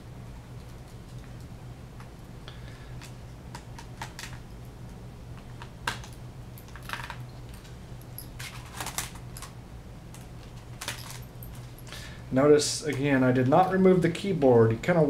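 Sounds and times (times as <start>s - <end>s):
faint low hum: 0.0s - 15.0s
plastic clattering: 8.4s - 9.5s.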